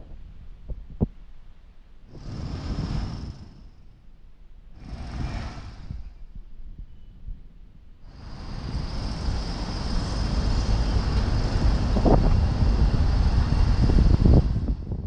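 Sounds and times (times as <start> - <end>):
vehicle passing: 4.8 - 6.1.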